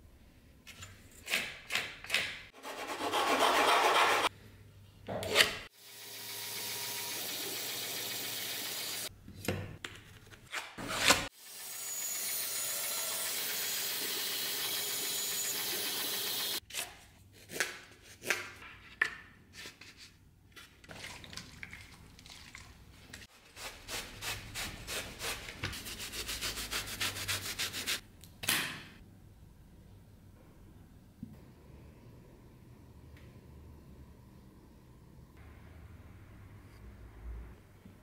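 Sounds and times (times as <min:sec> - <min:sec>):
bandsaw whirring: 0:11.0 - 0:16.6.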